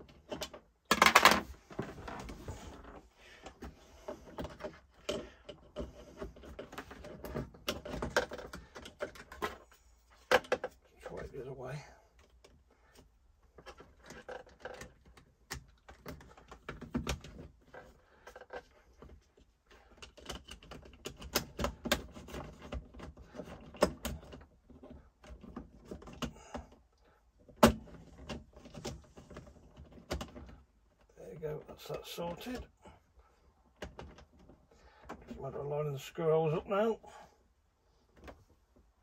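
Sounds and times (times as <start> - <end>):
plastic clicks and rattles: 0.0 - 1.5, 10.2 - 10.8, 13.5 - 19.2.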